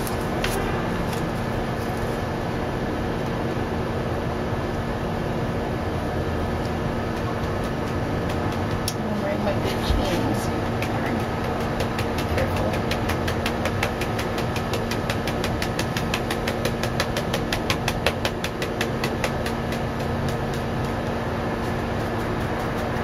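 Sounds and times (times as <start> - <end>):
machine hum: 0.0 - 23.0
fast regular ticking: 7.1 - 9.6, 10.3 - 23.0.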